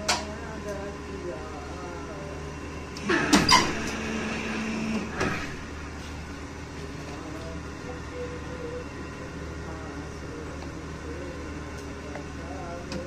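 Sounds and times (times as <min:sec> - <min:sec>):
low machine hum: 0:00.0 - 0:13.0
press whine: 0:00.0 - 0:13.0
hydraulic press metallic clatter: 0:03.0 - 0:04.0.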